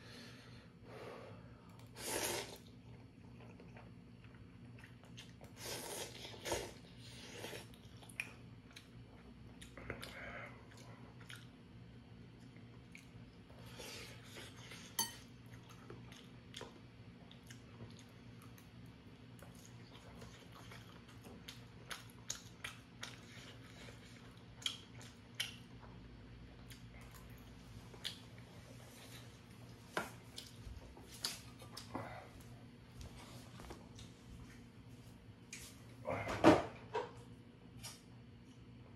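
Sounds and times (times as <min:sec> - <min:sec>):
steady low hum: 0:00.0 - 0:38.9
chewing: 0:02.9 - 0:06.8, 0:07.4 - 0:11.6, 0:14.2 - 0:18.8, 0:19.4 - 0:26.0.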